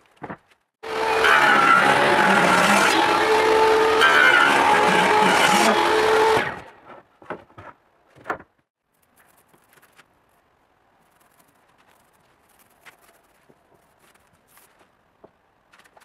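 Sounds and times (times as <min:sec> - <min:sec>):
table saw whining: 0:00.8 - 0:06.7.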